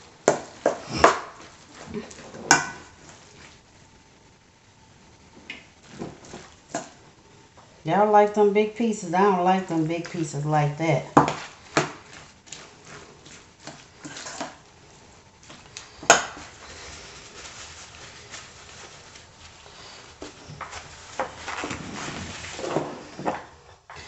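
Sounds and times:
wet rustling and squelching: 11.4s - 23.2s
hands wiped on paper towel: 15.4s - 23.2s.

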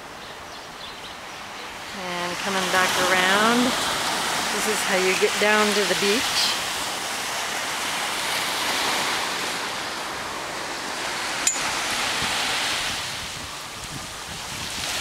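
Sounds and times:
waves washing up a beach: 0.0s - 15.0s.

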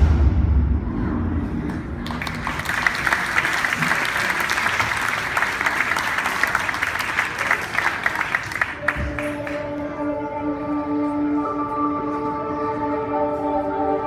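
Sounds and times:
crowd clapping: 1.7s - 9.8s.

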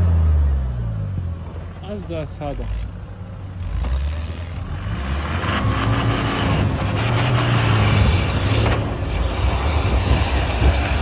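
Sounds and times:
pickup engine revving: 3.5s - 11.0s.

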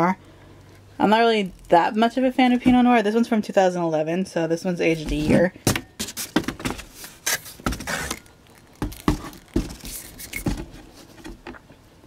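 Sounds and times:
glass bottles knocking in cardboard: 8.7s - 10.7s.

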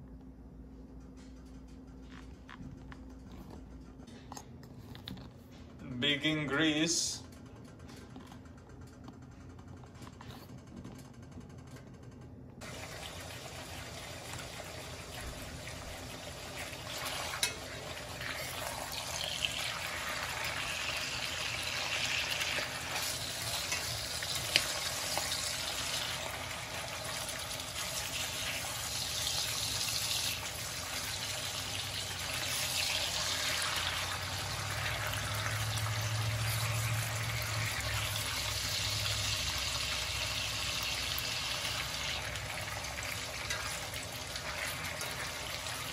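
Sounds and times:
meat sizzling in skillet: 12.6s - 45.9s.

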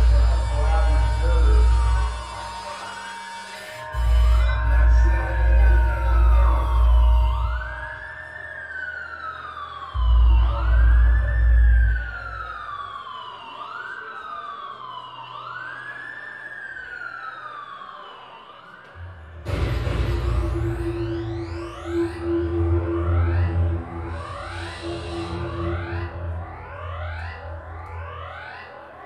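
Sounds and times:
deep throbbing bass pulses: 0.0s - 2.8s, 3.8s - 8.2s, 9.0s - 12.9s, 19.2s - 29.0s
synthesizer tone sweeping: 0.0s - 13.8s, 19.0s - 29.0s
dense wash of noise: 19.4s - 28.2s.

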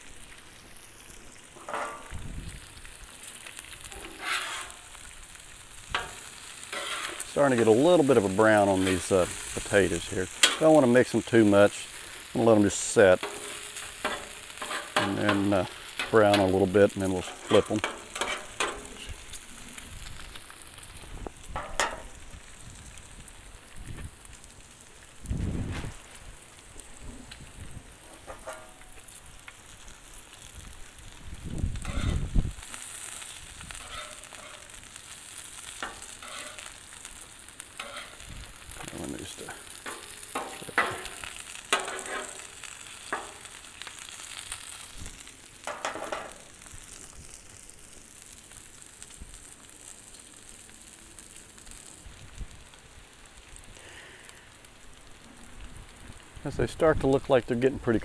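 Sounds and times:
meat sizzling on a griddle: 0.0s - 58.0s
metal spatula scraping and tapping: 1.6s - 2.1s, 3.9s - 4.8s, 6.0s - 7.7s, 10.4s - 10.7s, 13.2s - 16.5s, 17.3s - 19.0s, 21.6s - 22.1s, 28.2s - 28.9s, 31.8s - 32.2s, 33.8s - 34.8s, 35.8s - 36.7s, 37.8s - 38.2s, 39.8s - 42.5s, 43.1s - 43.5s, 45.7s - 46.4s.

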